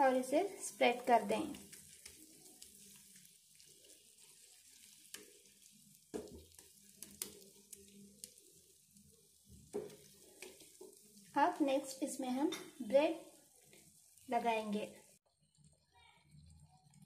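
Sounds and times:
faint sizzling in a pan: 0.0 - 17.0
wooden spatula knocks and scrapes: 6.1 - 6.6, 9.6 - 11.0.

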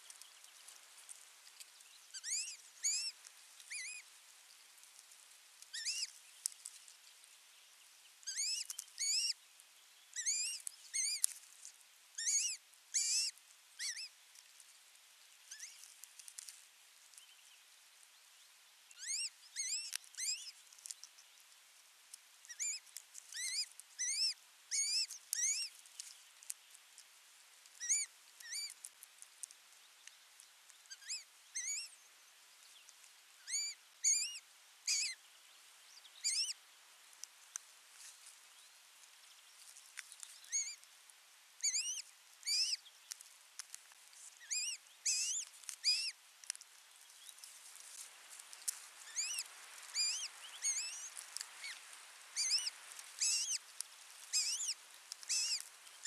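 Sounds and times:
osprey whistled chirps: 2.2 - 3.1, 5.8 - 6.1, 8.3 - 9.4, 10.2 - 11.2, 12.2 - 14.1, 23.4 - 25.7, 30.9 - 31.9, 33.5 - 35.2, 36.2 - 36.6, 41.6 - 42.8, 44.4 - 46.2, 49.1 - 51.8, 52.4 - 53.6, 54.3 - 55.6.

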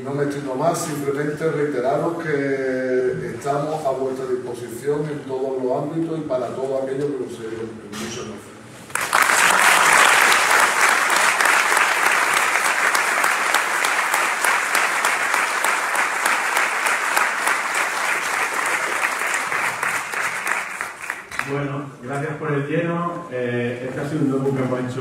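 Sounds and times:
audience applauding: 8.9 - 21.6.

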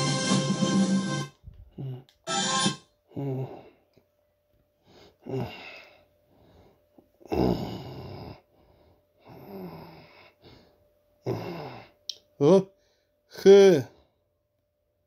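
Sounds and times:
person making growl-like sounds: 1.7 - 2.1, 3.1 - 3.8, 5.2 - 5.9, 7.2 - 8.4, 11.2 - 12.0.

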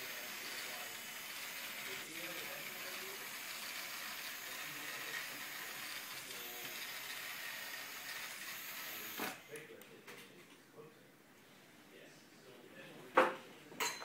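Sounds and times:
toy robot motors and gears running: 0.0 - 9.5.

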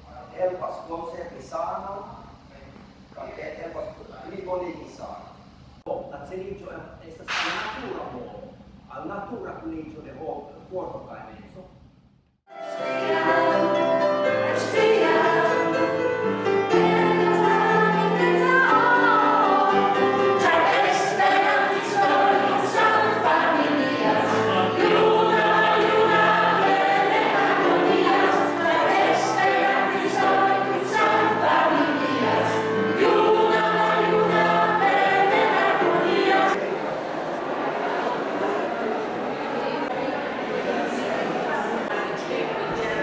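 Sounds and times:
choir singing: 12.5 - 43.0.

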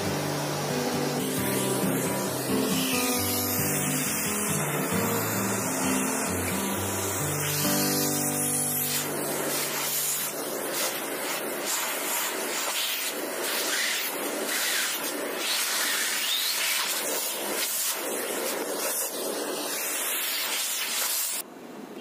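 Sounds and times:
vacuum cleaner running: 0.0 - 16.3.

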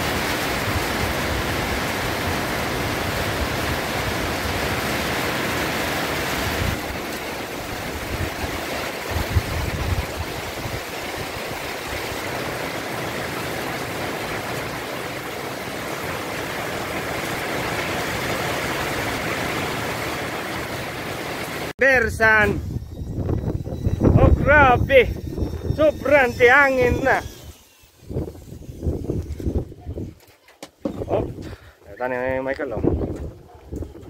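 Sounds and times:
heavy rain on metal roof: 0.0 - 21.7.

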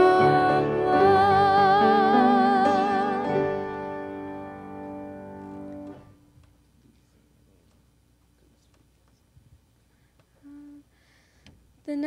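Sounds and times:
piano chords: 0.0 - 6.3.

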